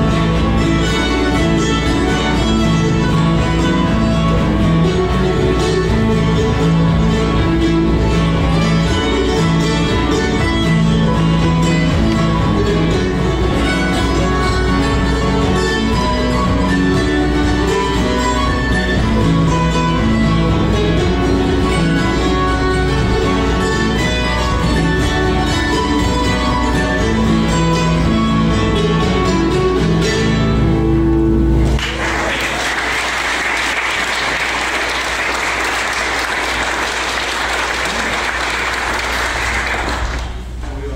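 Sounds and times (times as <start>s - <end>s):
mandolin and acoustic guitars: 0.0s - 40.9s
audience applause: 31.7s - 40.8s.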